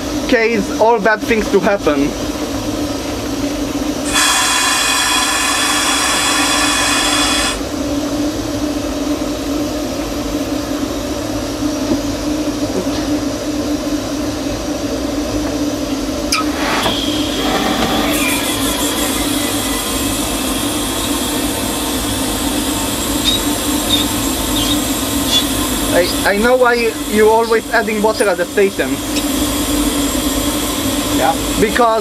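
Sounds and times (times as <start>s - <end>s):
steam locomotive running rumble: 0.0s - 32.0s
thin steady whine: 0.0s - 32.0s
loud steam hiss: 4.0s - 7.7s, 16.5s - 32.0s.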